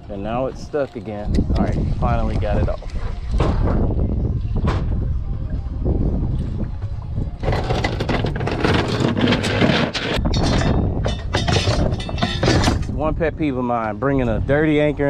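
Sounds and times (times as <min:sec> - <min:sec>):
anchor chain clinking and rattling: 0:07.4 - 0:13.0.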